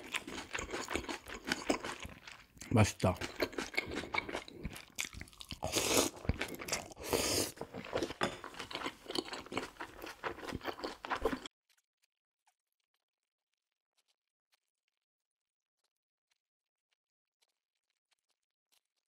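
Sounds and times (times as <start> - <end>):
crunchy chewing: 0.0 - 11.5.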